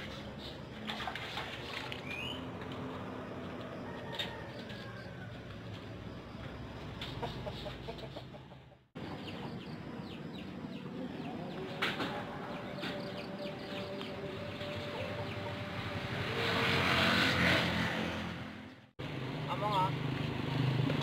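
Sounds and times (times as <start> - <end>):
chickens clucking: 7.0 - 14.0.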